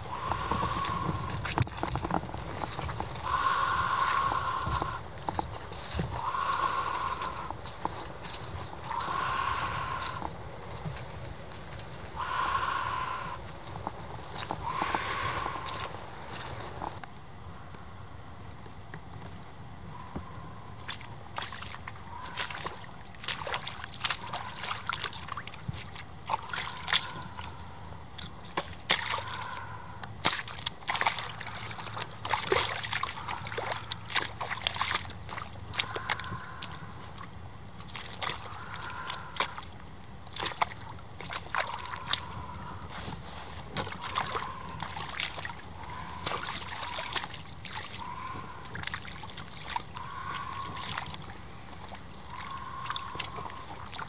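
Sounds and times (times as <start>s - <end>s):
rubber boots squelching in mud: 0.0s - 17.0s, 20.3s - 54.0s
mud and water slaps: 0.0s - 17.2s, 20.2s - 54.0s.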